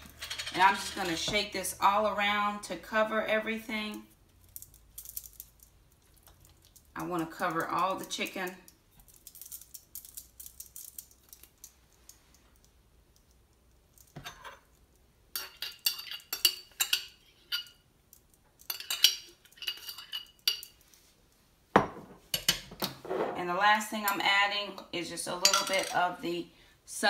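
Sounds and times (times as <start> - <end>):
metal spoon clinking in glass jar: 15.4 - 17.8, 18.6 - 20.8, 25.4 - 26.0.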